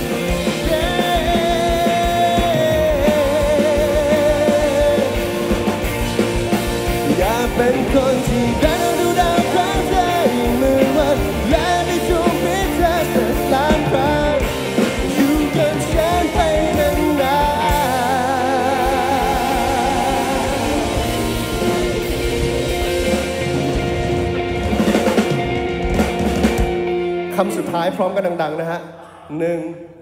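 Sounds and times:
man singing with vibrato: 0.0s - 5.6s, 7.0s - 22.9s
electric bass: 0.0s - 27.6s
electric guitars: 0.0s - 28.6s
drums: 0.0s - 28.7s.

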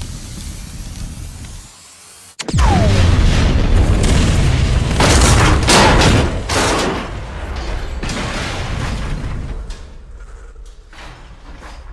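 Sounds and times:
sharp blasts: 2.3s - 7.2s
big explosion rumbling: 2.5s - 6.5s.

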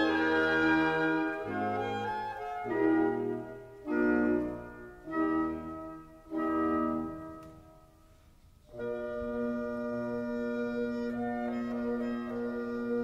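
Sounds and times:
sustained keyboard chords: 0.0s - 7.8s.

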